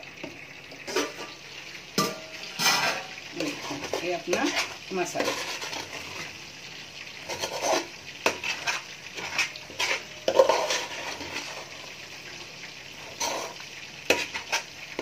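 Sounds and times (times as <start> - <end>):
spoon scraping metal pot: 2.0 - 6.3, 7.2 - 11.9, 13.1 - 15.0.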